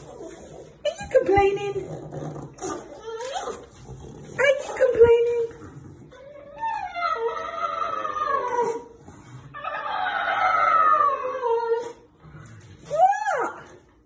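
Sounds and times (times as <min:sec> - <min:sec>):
dog whining howls: 0:06.2 - 0:08.9, 0:09.6 - 0:12.0.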